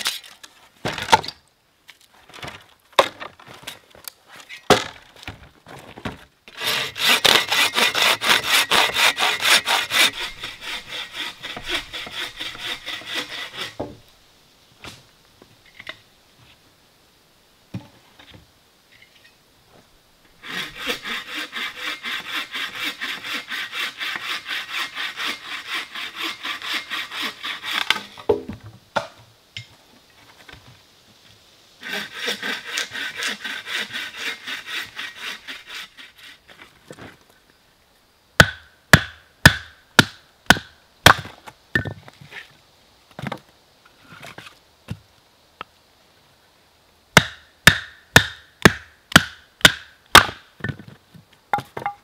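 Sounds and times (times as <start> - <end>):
bow saw rasping through wood: 6.5 - 13.9, 20.4 - 28.1, 31.8 - 36.6.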